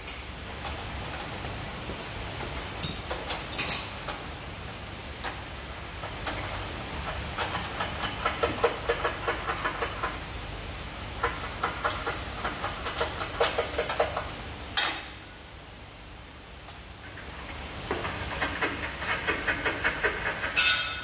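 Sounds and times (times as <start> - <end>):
washing machine running: 0.0 - 14.8, 15.5 - 21.0
rapid irregular clicking: 5.2 - 10.3, 11.1 - 14.4, 17.0 - 21.0.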